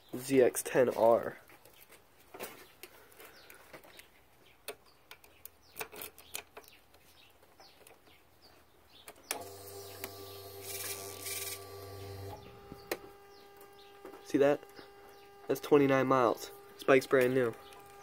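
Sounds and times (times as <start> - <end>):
small handling clicks: 2.8 - 7.0
fuel pump electric hum: 9.3 - 18.0
faint chirping: 11.6 - 18.0.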